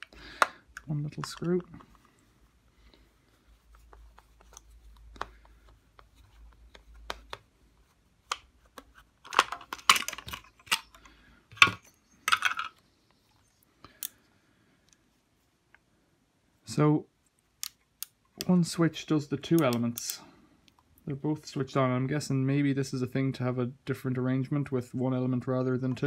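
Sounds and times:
plastic parts clicking and rattling: 0:00.0 - 0:02.2, 0:03.9 - 0:07.5, 0:08.2 - 0:12.8.

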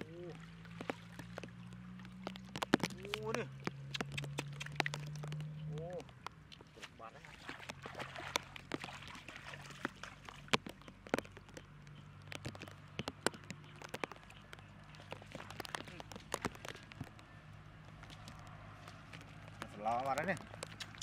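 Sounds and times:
water splashing and dripping: 0:00.0 - 0:21.0
sharp taps: 0:00.7 - 0:06.7, 0:09.8 - 0:17.2.

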